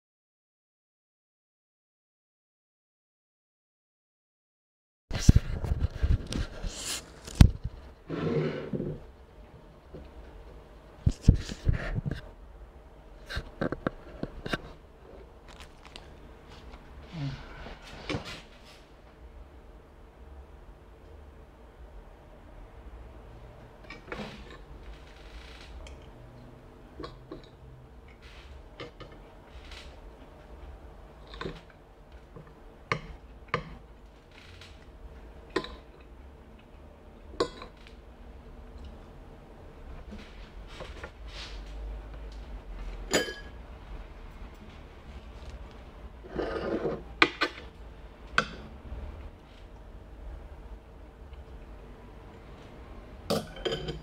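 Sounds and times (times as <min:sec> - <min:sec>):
spoon scraping a plate: 0:08.1 - 0:09.0, 0:46.3 - 0:47.1.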